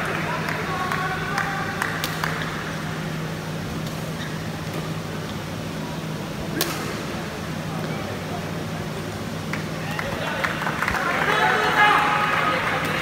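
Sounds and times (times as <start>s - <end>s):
low hum in hall: 0.0s - 13.0s
racket hitting shuttlecock: 1.9s - 2.5s, 6.5s - 7.1s
shoes squeaking on court: 3.7s - 5.5s.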